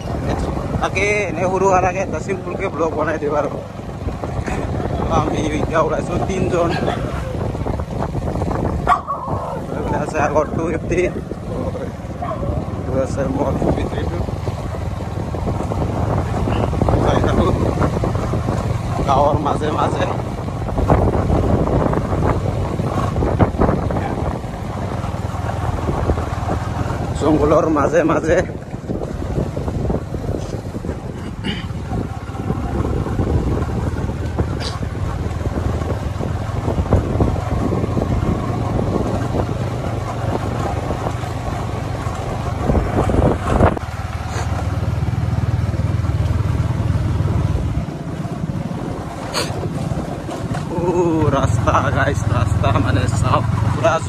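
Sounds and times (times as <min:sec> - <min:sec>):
motorcycle engine rumbling: 0:00.0 - 0:54.0
wind on microphone: 0:00.0 - 0:54.0.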